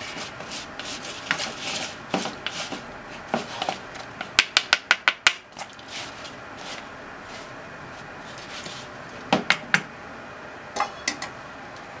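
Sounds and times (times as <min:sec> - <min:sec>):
chopsticks tapping plastic bowl: 0:04.2 - 0:05.4.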